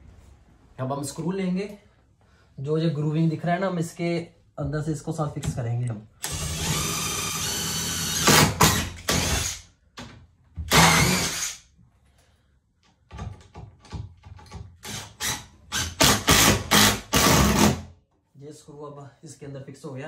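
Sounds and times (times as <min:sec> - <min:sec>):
power drill driving screws: 0:06.2 - 0:09.6, 0:10.7 - 0:11.6, 0:14.8 - 0:17.8.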